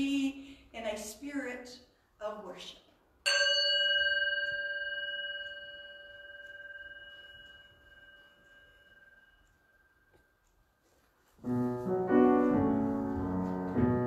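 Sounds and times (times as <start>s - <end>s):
singing bowl ringing: 3.2s - 10.4s.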